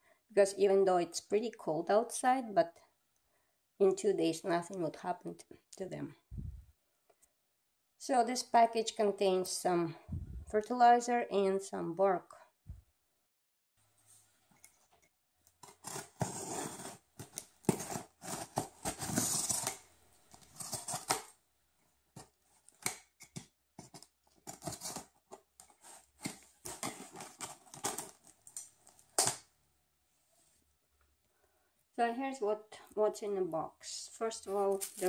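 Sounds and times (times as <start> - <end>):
knife slicing packing tape: 15.6 - 19.8.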